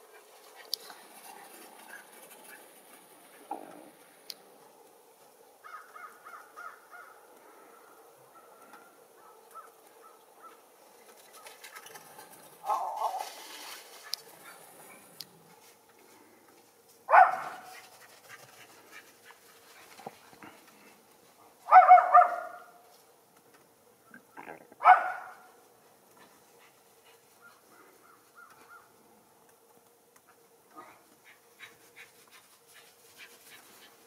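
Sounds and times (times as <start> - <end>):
dog barking: 12.6 - 13.3, 17.1 - 17.8, 21.7 - 22.8, 24.8 - 25.5.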